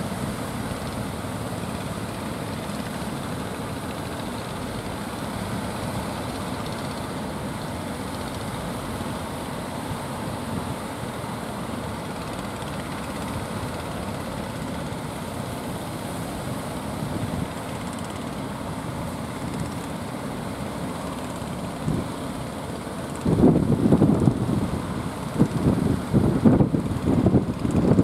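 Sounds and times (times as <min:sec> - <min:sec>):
wind buffeting microphone: 0:23.2 - 0:28.0.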